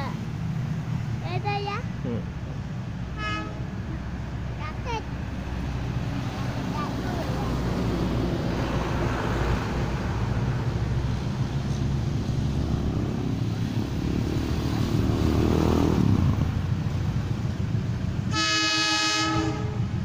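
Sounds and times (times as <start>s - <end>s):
diesel train engine drone: 0.0s - 20.0s
train horn chord: 3.1s - 3.8s, 18.3s - 20.0s.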